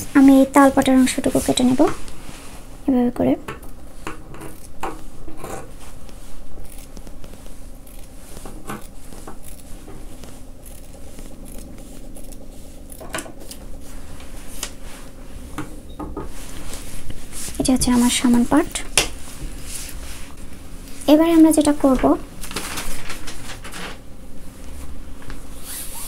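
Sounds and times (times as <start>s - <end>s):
scissors cutting cloth: 4.4s - 4.8s, 5.4s - 13.7s.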